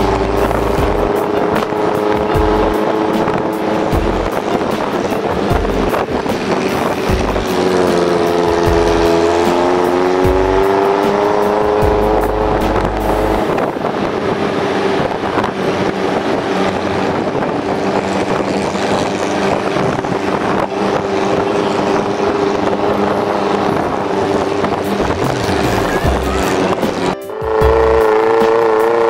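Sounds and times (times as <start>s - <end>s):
jeep engine running: 0.0s - 29.0s
road noise: 0.0s - 29.0s
wind noise: 0.0s - 29.0s.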